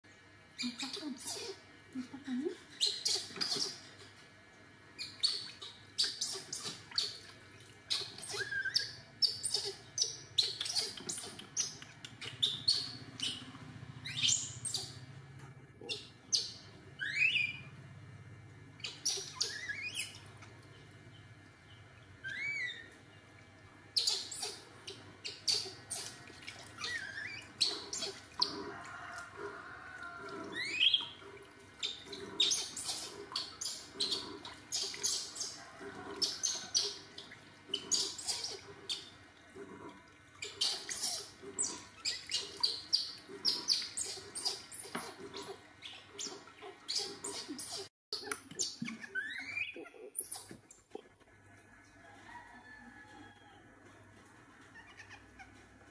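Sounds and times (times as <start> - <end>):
baby monkey squeaking: 2.8 - 3.8, 5.0 - 7.2, 7.9 - 13.4, 18.8 - 20.2, 24.0 - 26.2, 26.8 - 28.2, 37.7 - 39.1, 40.4 - 50.5.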